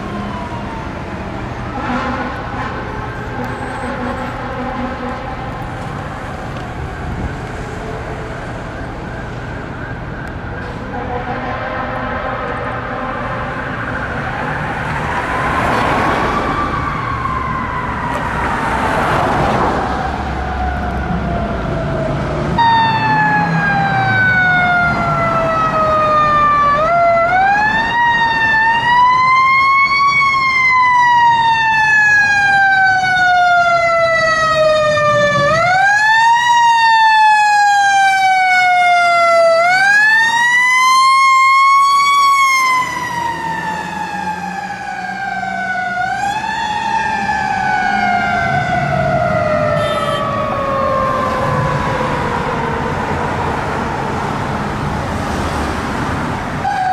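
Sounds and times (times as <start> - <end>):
fire truck siren wailing: 0.0 - 56.9.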